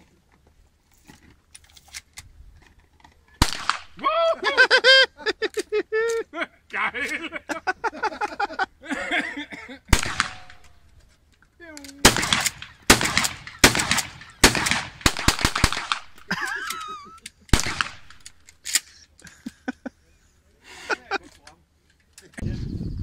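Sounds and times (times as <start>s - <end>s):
gunshots: 3.4s - 4.0s, 9.9s - 10.8s, 12.0s - 16.3s, 17.5s - 18.5s.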